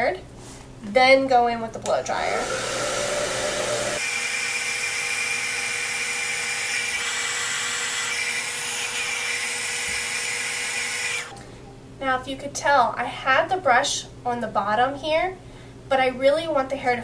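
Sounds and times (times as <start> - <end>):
hair dryer running: 2.1 - 11.3.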